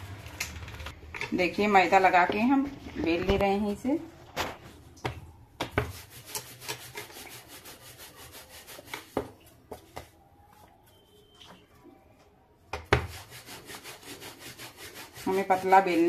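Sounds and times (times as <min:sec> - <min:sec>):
rolling pin rolling dough: 0:05.6 - 0:11.4, 0:12.7 - 0:16.0.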